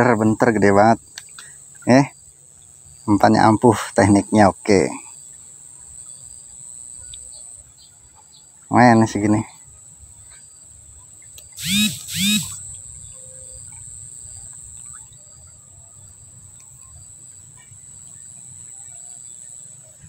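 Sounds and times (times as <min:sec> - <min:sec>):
high insect shrilling: 0:11.5 - 0:13.4.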